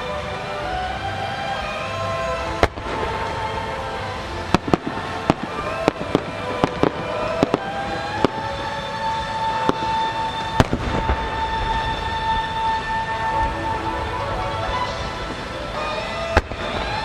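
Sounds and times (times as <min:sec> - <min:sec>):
steady high tone: 0:00.0 - 0:17.0
fireworks pops and bang: 0:09.7 - 0:12.7.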